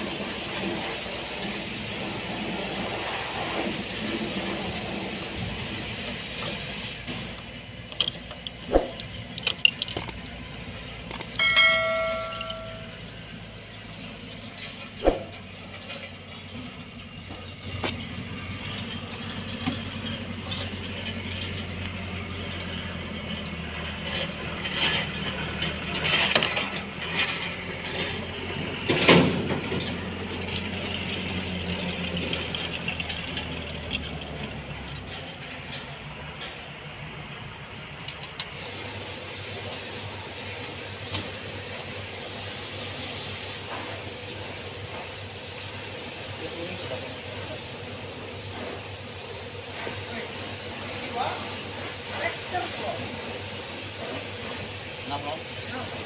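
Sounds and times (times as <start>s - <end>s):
metal tools clinking: 7.9s - 10.3s, 11.0s - 13.6s, 37.8s - 38.6s.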